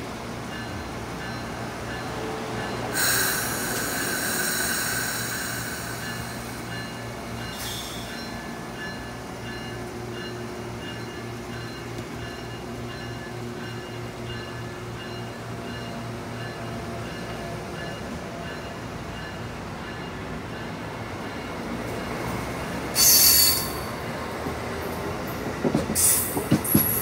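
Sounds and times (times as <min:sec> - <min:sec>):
train coaches rolling: 0:00.0 - 0:27.0
high-pitched metallic squeal: 0:07.5 - 0:08.4, 0:23.0 - 0:23.9.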